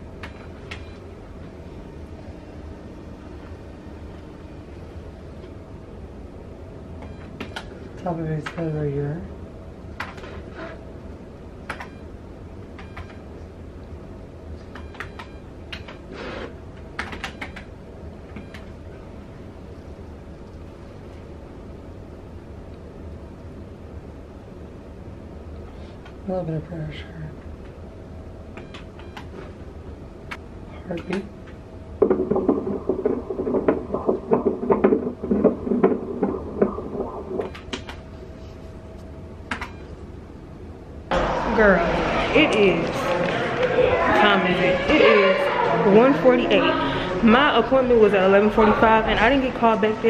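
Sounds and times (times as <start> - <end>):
steady low hum: 0.0 - 50.0
fetal heartbeat whooshing pulses: 31.4 - 40.0.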